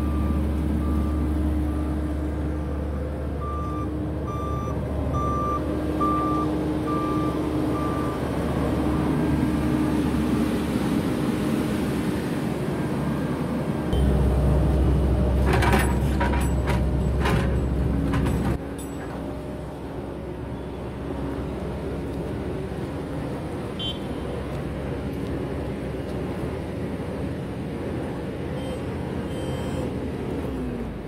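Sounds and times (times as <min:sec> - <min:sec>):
heavy construction equipment running: 0:00.0 - 0:31.0
reversing alarm beeping: 0:03.4 - 0:08.2, 0:28.6 - 0:29.9
knocks and clatters: 0:15.3 - 0:19.3.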